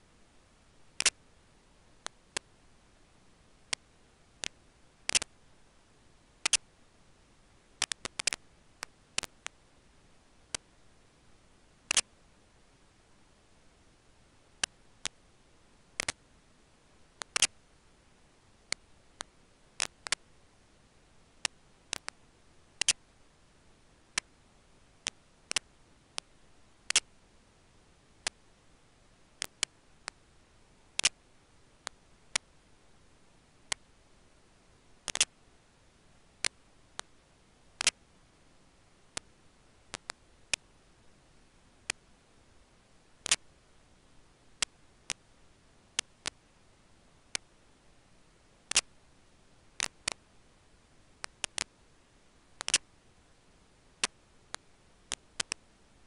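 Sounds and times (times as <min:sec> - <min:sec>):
faint steady hiss: 0:00.0 - 0:56.0
sharp clicks: 0:01.0 - 0:01.2, 0:04.4 - 0:05.3, 0:06.4 - 0:06.7, 0:07.8 - 0:09.6, 0:11.9 - 0:12.1, 0:16.0 - 0:16.2, 0:17.2 - 0:17.6, 0:22.8 - 0:23.0, 0:26.9 - 0:27.1, 0:31.0 - 0:31.2, 0:35.1 - 0:35.3, 0:39.9 - 0:40.7, 0:43.2 - 0:43.4, 0:48.7 - 0:48.9, 0:51.2 - 0:51.7, 0:52.6 - 0:52.9, 0:54.0 - 0:55.6.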